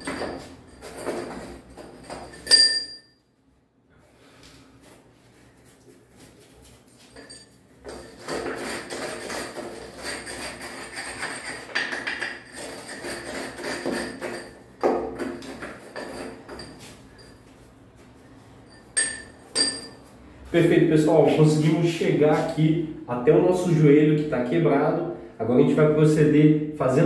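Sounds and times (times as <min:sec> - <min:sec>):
chisel scraping and chipping concrete: 0:07.8 - 0:16.8.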